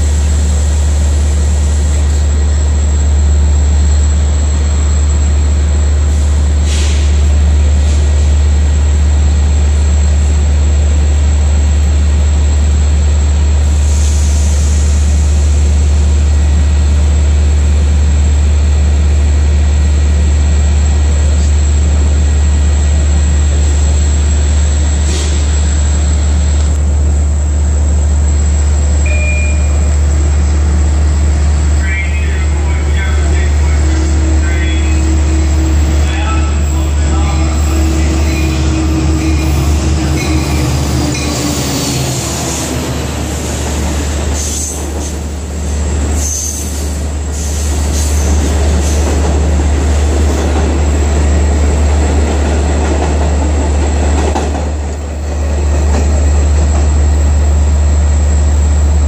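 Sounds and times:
diesel train rumbling: 0:00.0 - 0:59.0
brief hisses: 0:06.7 - 0:07.2.

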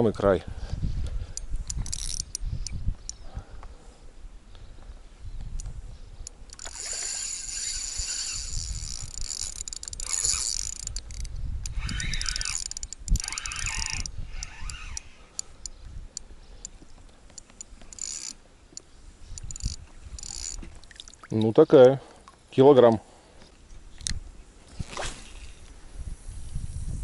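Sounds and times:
spinning reel whirring and clicking: 0:01.6 - 0:02.4, 0:06.5 - 0:15.5, 0:17.3 - 0:18.4, 0:19.4 - 0:20.6.

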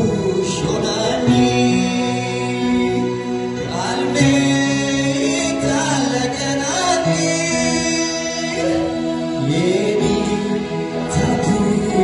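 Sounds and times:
long held accompaniment notes: 0:00.0 - 0:12.0
man singing into microphone: 0:00.0 - 0:12.0.

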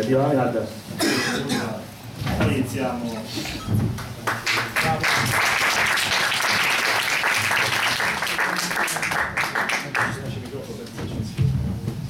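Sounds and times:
audience applauding: 0:04.0 - 0:10.4.

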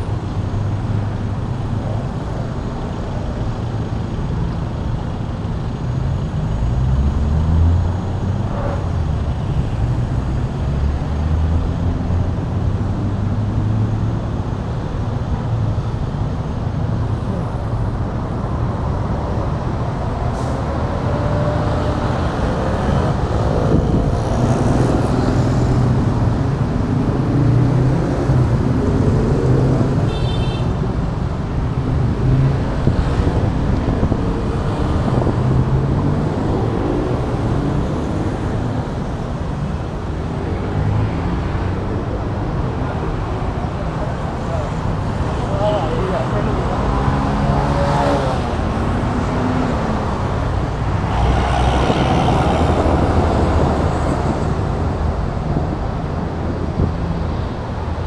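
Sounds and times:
road traffic engine rumble: 0:00.0 - 0:58.0
vehicles accelerating away: 0:19.0 - 0:30.1, 0:31.6 - 0:57.8.

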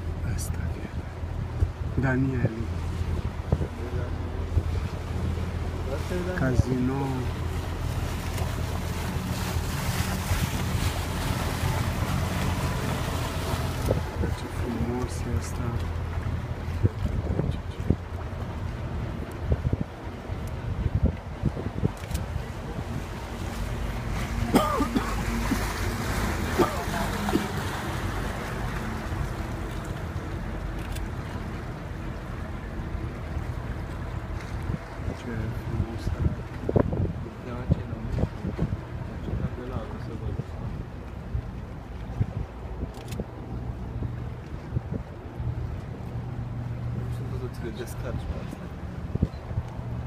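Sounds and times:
boat engine running: 0:00.0 - 0:50.0
water noise: 0:00.0 - 0:50.0
wind buffeting microphone: 0:00.0 - 0:50.0
wind noise: 0:16.6 - 0:29.0, 0:34.3 - 0:39.6, 0:40.2 - 0:45.8, 0:48.9 - 0:50.0.

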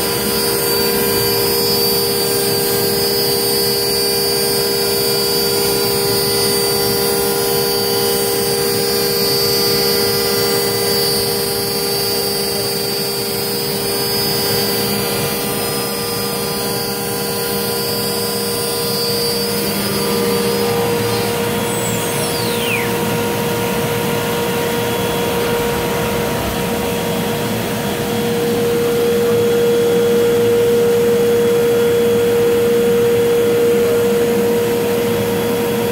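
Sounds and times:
router spindle whining: 0:00.0 - 0:29.4
brief falling whistle: 0:19.2 - 0:23.1.

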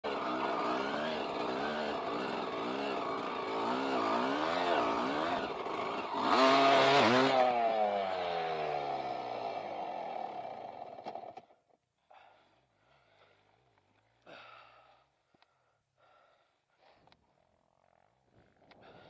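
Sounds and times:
dirt bike engine revving: 0:00.0 - 0:11.4.

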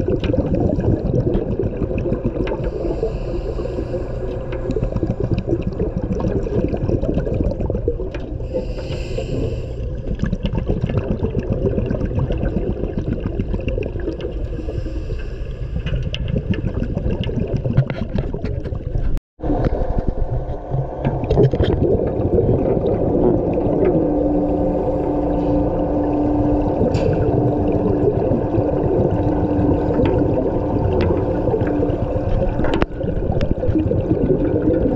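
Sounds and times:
exhaled bubbles: 0:00.0 - 0:34.9
steady low hum: 0:01.3 - 0:10.3, 0:19.4 - 0:34.9
regulator breathing underwater: 0:02.4 - 0:06.7, 0:08.3 - 0:10.1, 0:14.4 - 0:16.5, 0:23.8 - 0:32.8.

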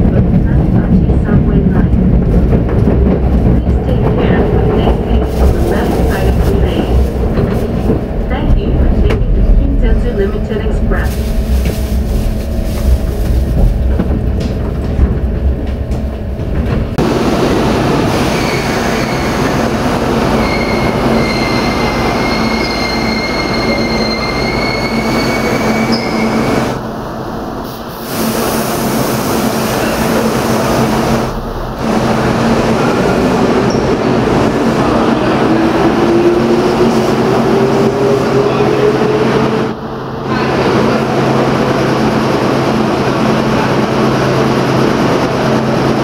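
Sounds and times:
train rumbling on rails: 0:00.0 - 0:46.0
high wheel squeal: 0:20.3 - 0:26.6.

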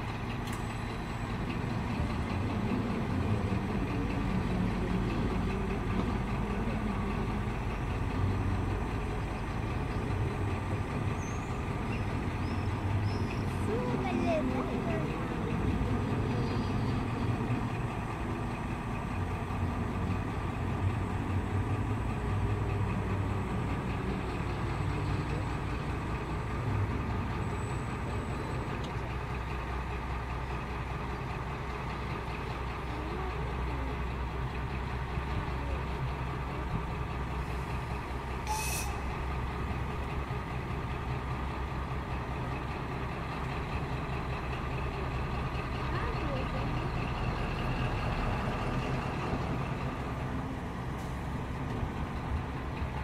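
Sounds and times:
diesel locomotive idling: 0:00.0 - 0:53.0.

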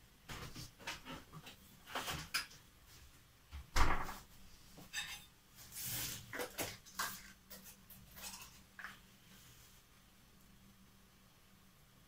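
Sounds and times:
spoon and plastic tub rustling: 0:04.9 - 0:09.0.

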